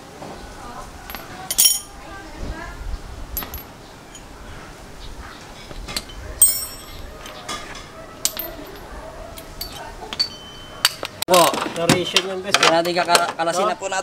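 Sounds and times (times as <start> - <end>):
voices: 0.0 - 14.0
metal tools clinking on concrete: 1.0 - 2.0, 3.4 - 4.3, 5.6 - 13.6.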